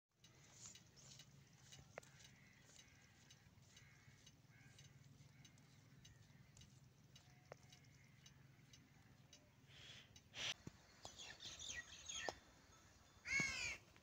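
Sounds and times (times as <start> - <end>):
faint clicks: 0.2 - 11.2.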